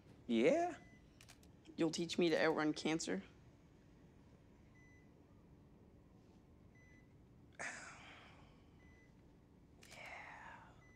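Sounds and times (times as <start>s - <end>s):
faint patient monitor beep: 0.6s - 1.4s, 4.6s - 5.5s, 6.7s - 7.3s, 8.7s - 9.3s, 9.9s - 10.9s.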